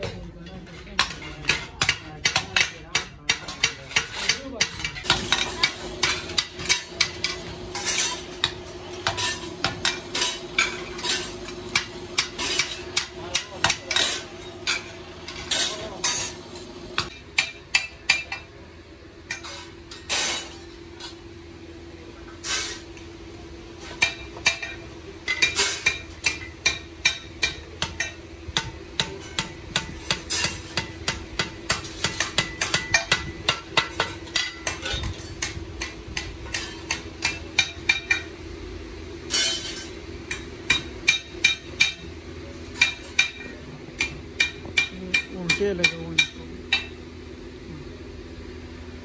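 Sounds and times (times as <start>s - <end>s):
hammer striking metal anvil: 1.0s - 16.4s, 17.0s - 18.5s, 23.9s - 38.3s, 39.3s - 42.1s, 42.7s - 47.0s
steady hum: 4.3s - 49.0s.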